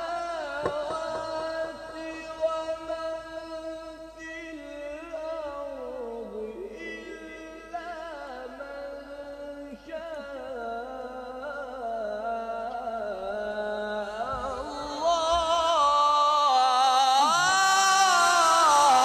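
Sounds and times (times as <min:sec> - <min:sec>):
man reciting melodically: 0:00.0 - 0:19.0.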